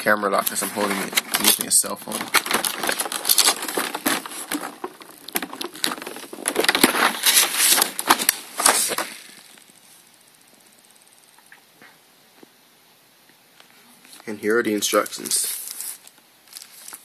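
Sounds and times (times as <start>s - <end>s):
plastic packaging crackling: 0.0s - 9.8s, 14.1s - 17.0s.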